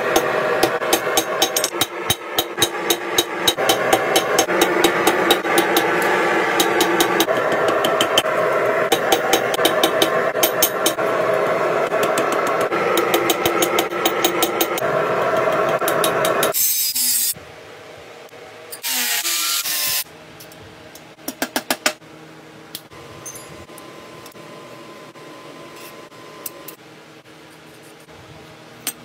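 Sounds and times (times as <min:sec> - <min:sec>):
hammer blows on hot steel: 0:00.0 - 0:16.6
metal scraping: 0:00.0 - 0:16.8
loud steady background noise: 0:00.0 - 0:18.9.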